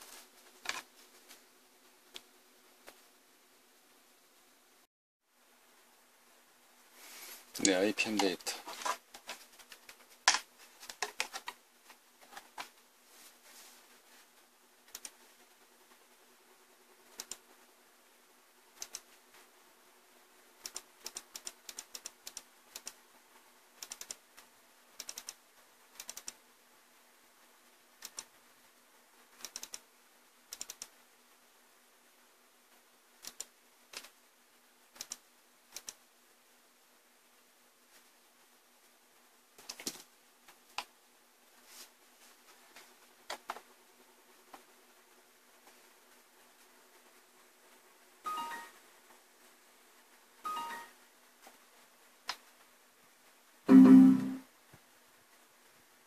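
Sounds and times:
faint steady hum: 0.0s - 56.0s
circuit board clattering: 8.1s - 11.6s
computer mouse clicks: 14.9s - 15.2s, 17.2s - 17.4s, 18.8s - 19.2s, 20.6s - 23.0s, 23.8s - 25.4s, 26.0s - 26.4s, 28.0s - 28.4s, 29.4s - 29.9s, 30.5s - 31.0s, 33.2s - 34.2s, 34.9s - 36.0s, 39.6s - 40.1s.

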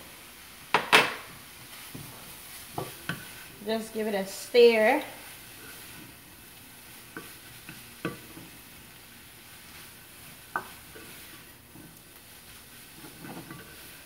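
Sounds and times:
vegetables sizzling in a frying pan: 0.0s - 14.0s
wooden spatula stirring: 1.3s - 14.0s
spatula knocking on pan: 10.5s - 10.8s.

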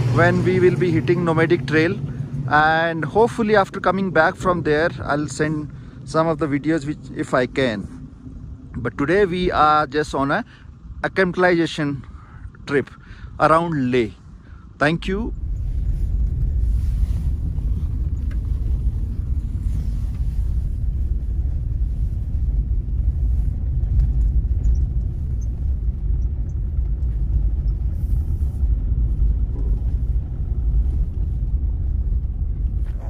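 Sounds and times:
engine and tyre rumble: 0.0s - 33.0s.

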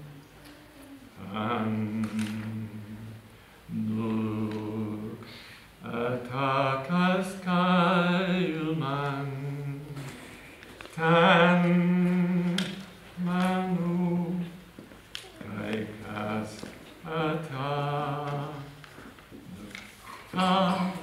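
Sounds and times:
man singing long notes: 11.0s - 14.6s, 15.4s - 18.8s, 19.5s - 21.0s.

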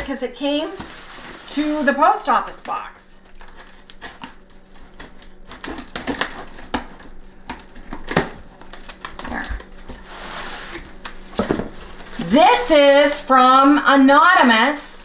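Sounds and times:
knife cutting packing tape: 2.4s - 12.3s
hissy rasp of tape: 9.3s - 11.2s.

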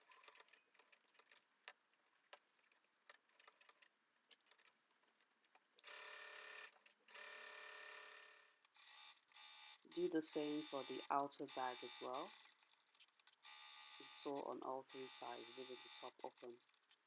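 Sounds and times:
electric sewing machine stitching: 5.8s - 16.8s.

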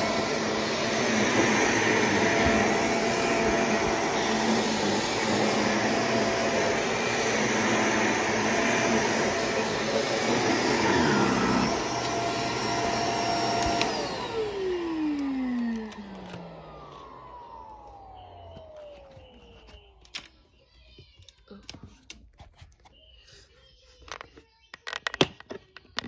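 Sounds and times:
vacuum cleaner running on carpet: 0.0s - 19.8s
vacuum motor winding down: 0.0s - 19.9s.

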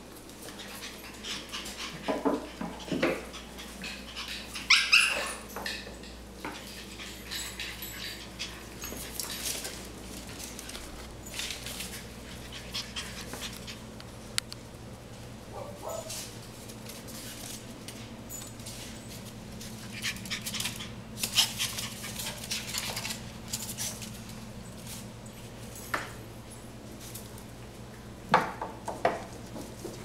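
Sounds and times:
claws scrabbling on tile floor: 0.1s - 14.3s, 15.9s - 25.9s
puppies yapping and growling: 0.4s - 11.4s
puppy high yip: 4.6s - 5.4s.

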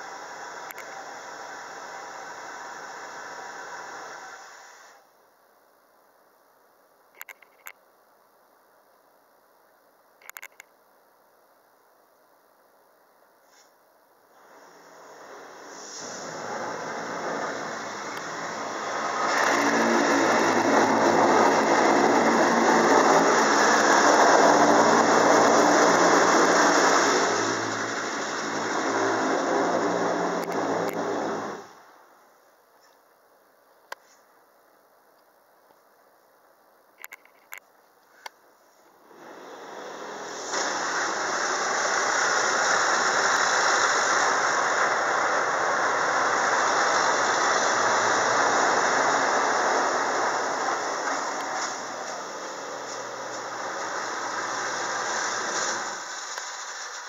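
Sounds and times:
water jets pelting car: 0.0s - 4.8s, 14.4s - 31.8s, 39.0s - 57.0s.

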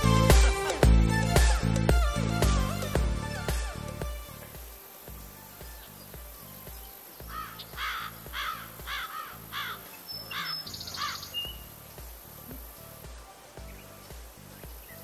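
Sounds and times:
background music with bass line: 0.0s - 15.0s
bird harsh calls: 7.0s - 11.8s.

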